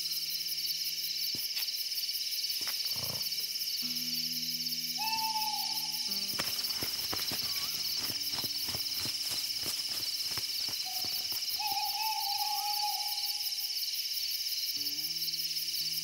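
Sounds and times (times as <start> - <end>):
insects chorus: 0.0 - 16.0
owl hooting: 4.8 - 13.6.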